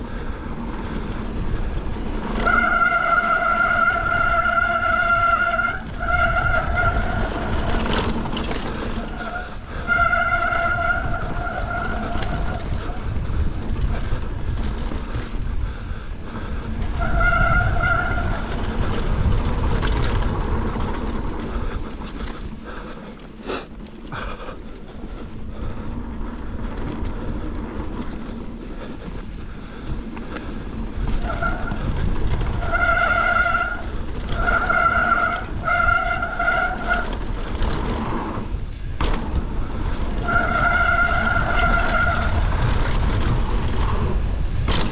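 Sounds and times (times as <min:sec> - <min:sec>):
bike rattling: 0:00.0 - 0:44.9
wind and tyre rumble: 0:00.0 - 0:44.9
disc brakes squealing: 0:01.4 - 0:13.2, 0:16.6 - 0:22.7, 0:28.5 - 0:43.4.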